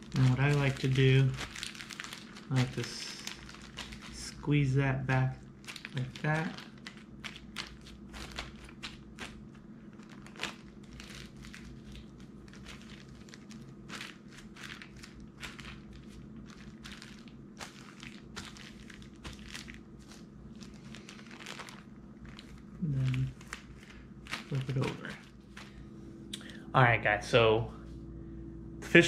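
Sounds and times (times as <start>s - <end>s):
zipper bag sealing: 0.0s - 4.6s, 5.6s - 25.8s
plastic bag crinkling: 0.0s - 25.9s
faint steady hum: 0.0s - 29.0s
marinade sloshing in bag: 5.5s - 25.8s.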